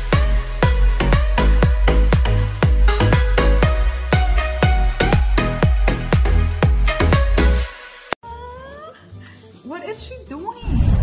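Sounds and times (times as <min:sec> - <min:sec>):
electronic dance music: 0:00.0 - 0:08.2.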